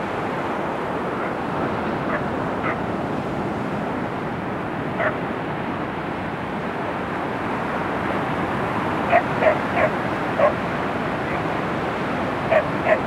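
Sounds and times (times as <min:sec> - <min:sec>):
surf washing over sand and rocks: 0:00.0 - 0:13.0
dog barking: 0:02.1 - 0:02.8, 0:05.0 - 0:05.2, 0:09.1 - 0:10.6, 0:12.5 - 0:13.0.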